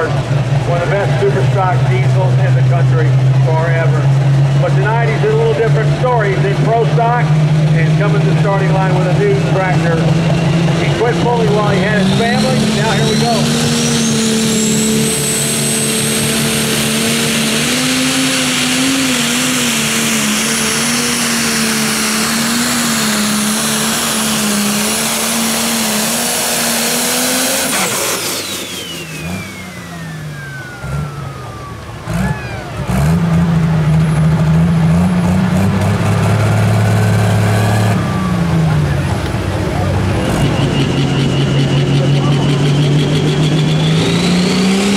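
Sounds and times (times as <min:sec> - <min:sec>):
diesel tractor engine under load: 0:00.0 - 0:44.9
high turbo whistle: 0:27.5 - 0:32.8, 0:40.2 - 0:44.8.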